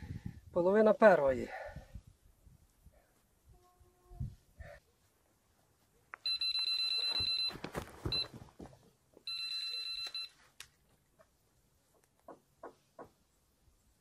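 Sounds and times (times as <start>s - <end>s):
rustling: 5.0s - 11.4s.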